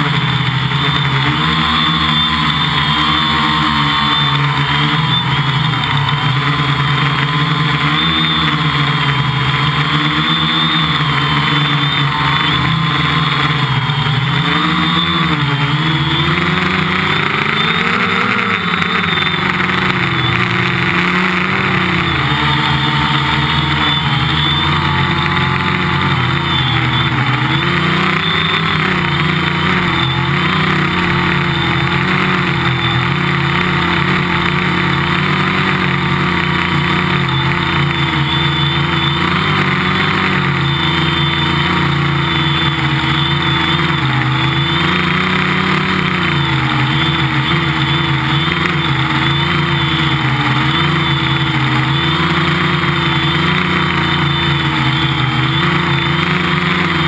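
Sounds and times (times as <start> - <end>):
quadcopter motors buzzing: 0.0 - 57.0.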